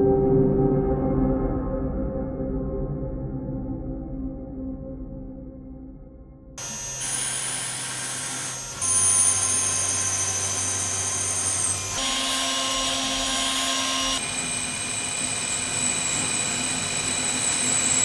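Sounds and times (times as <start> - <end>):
high-pitched spindle whine: 6.6 - 18.0.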